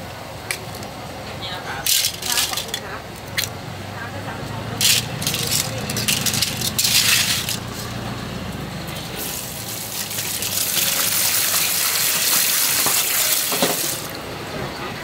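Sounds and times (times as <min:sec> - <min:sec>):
hose water into metal colander: 0:09.0 - 0:14.2.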